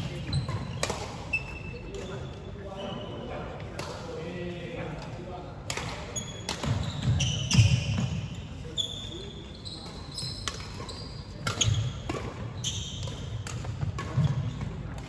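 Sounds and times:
rackets hitting shuttlecocks: 0.1 - 1.3.

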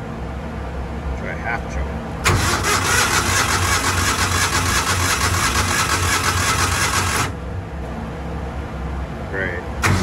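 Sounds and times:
starter cranking engine: 2.3 - 7.3.

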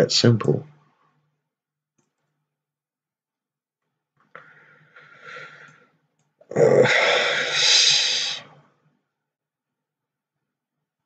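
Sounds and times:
man breathing: 4.3 - 6.1, 6.8 - 8.5
man exhaling loudly: 6.6 - 8.5.

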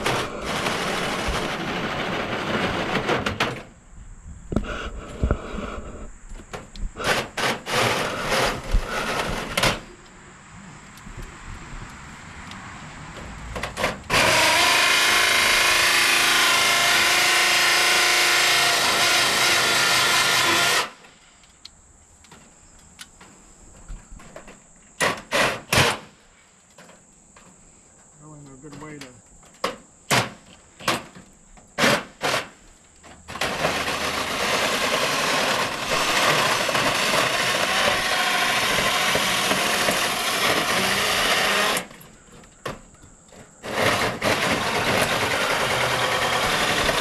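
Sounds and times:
power drill motor whining: 14.1 - 21.0, 33.4 - 41.9, 43.6 - 47.0.

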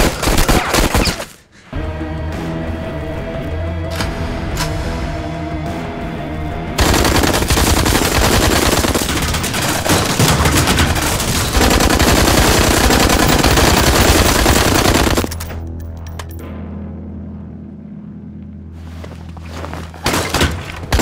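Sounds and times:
automatic gunfire: 0.0 - 1.2, 6.8 - 15.3
bullets hitting metal and wood: 6.8 - 16.4, 20.0 - 21.0.

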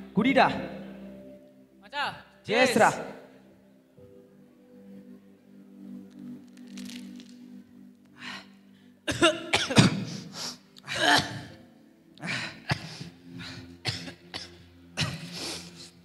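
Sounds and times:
man coughing and gasping: 9.1 - 10.3, 10.9 - 11.6, 13.8 - 15.3.

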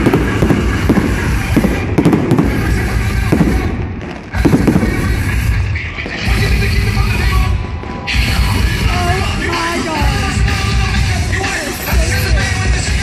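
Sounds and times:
fireworks crackling and banging: 0.0 - 13.0.

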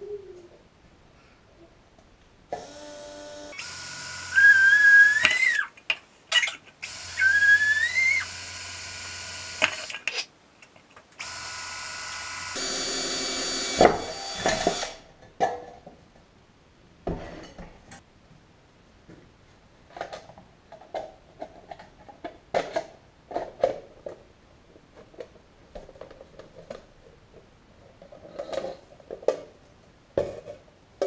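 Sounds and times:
drill boring through sheet metal: 2.6 - 5.6, 6.8 - 10.0, 11.2 - 15.0.

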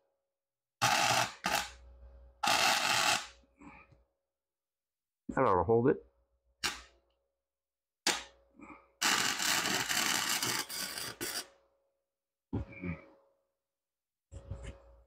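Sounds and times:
welder arc crackling: 9.0 - 11.4.

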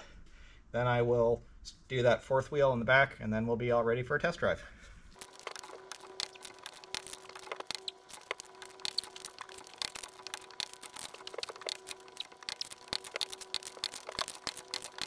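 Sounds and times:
faint steady hum: 4.9 - 15.0.

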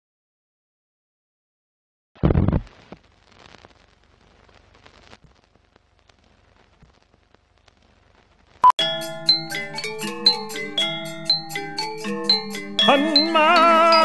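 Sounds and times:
faint crackling with ticks: 2.5 - 8.7.

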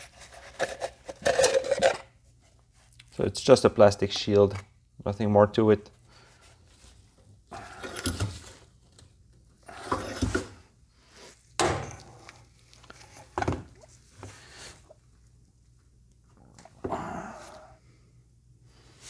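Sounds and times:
tools scraping: 9.7 - 10.6.

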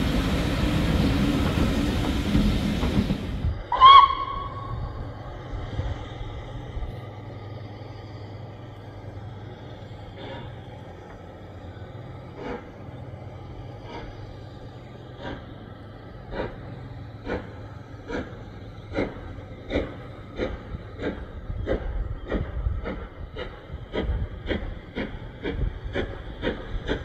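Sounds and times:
steam locomotive chuffing: 0.0 - 27.0.

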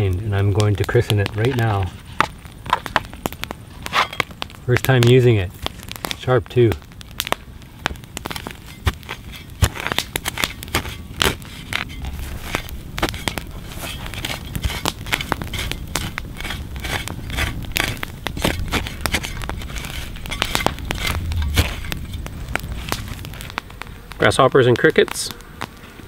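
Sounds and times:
campfire crackling and popping: 0.0 - 26.0
shovel scraping and chopping soil: 3.8 - 4.4, 8.2 - 23.6.

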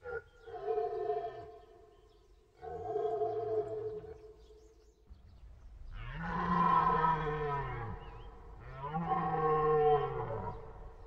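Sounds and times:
deer stag roaring: 6.0 - 10.9.

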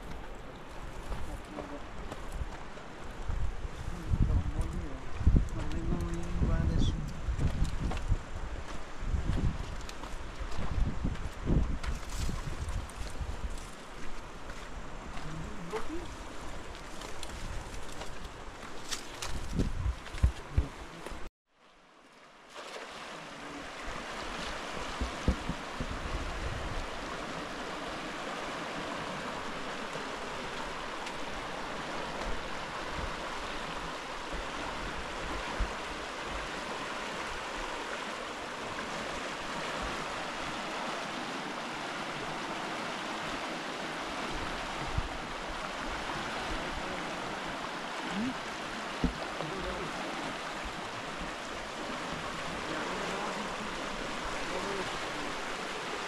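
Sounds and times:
river water rushing over rocks: 19.5 - 56.0.

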